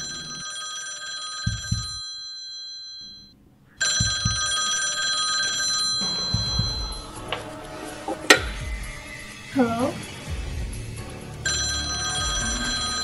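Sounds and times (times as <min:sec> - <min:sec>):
wall phone ringing: 0:00.0 - 0:07.1, 0:11.5 - 0:13.0
low thuds: 0:01.5 - 0:02.0, 0:03.5 - 0:04.6, 0:05.9 - 0:09.3.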